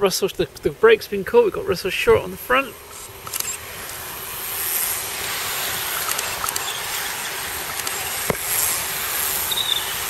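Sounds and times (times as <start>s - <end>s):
sharp clicks: 3.2s - 3.6s, 6.0s - 6.8s, 7.6s - 8.7s
bike tyres rushing on tarmac: 4.6s - 10.0s.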